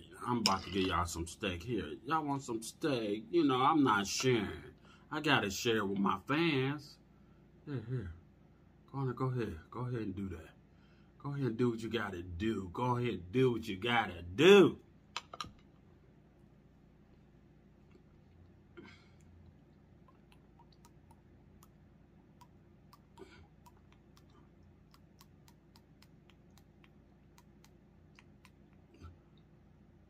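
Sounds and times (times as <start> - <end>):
sauce bottle ticking: 20.1 - 28.8.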